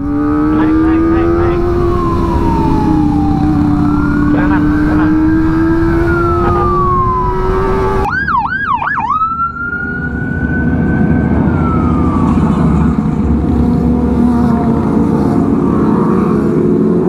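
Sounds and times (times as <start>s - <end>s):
motorcycle engines running: 0.0s - 8.1s, 10.4s - 17.0s
electronic siren: 0.0s - 13.2s.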